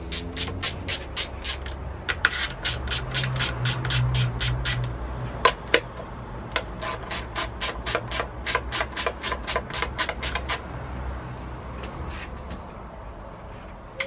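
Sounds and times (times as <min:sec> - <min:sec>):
socket ratchet clicking: 0:00.1 - 0:05.9.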